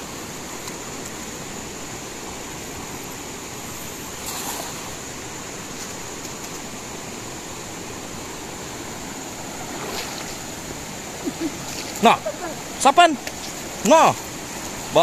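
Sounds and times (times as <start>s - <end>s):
river running over rocks: 0.0s - 15.0s
cast net splashing on water: 4.2s - 5.0s, 9.7s - 10.5s.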